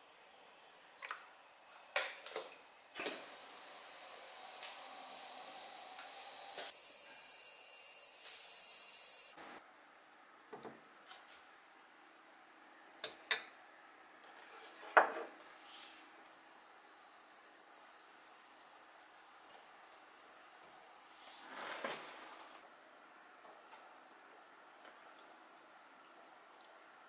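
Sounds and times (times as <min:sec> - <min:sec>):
high insect chorus: 0:00.0 - 0:12.5, 0:16.3 - 0:22.6.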